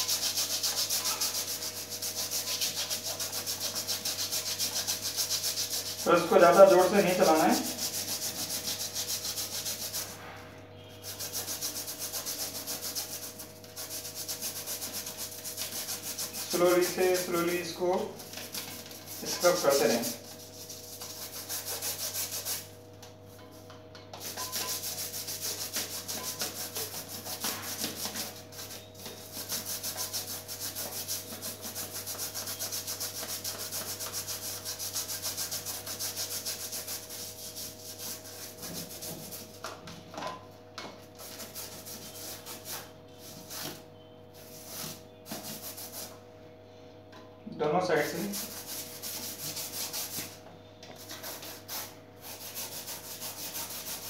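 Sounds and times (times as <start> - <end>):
brush scrubbing plastic mesh: 0.0 - 10.1, 11.0 - 22.7, 24.2 - 39.5.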